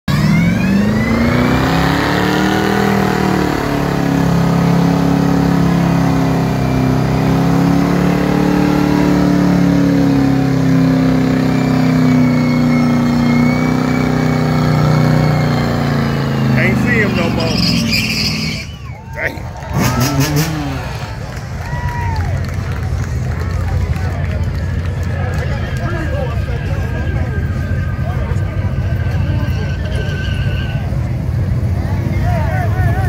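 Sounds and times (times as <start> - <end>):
car engine revving high: 0.1 - 22.1
tires spinning on pavement: 0.1 - 33.0.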